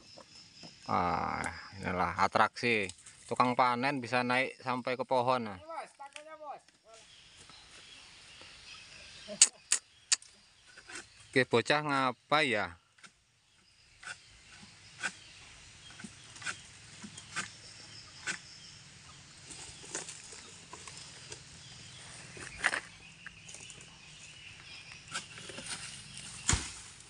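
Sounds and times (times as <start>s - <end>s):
palm fronds rustling: 2.7s - 3.6s, 13.9s - 27.0s
sharp knocks of sickle: 26.4s - 26.9s.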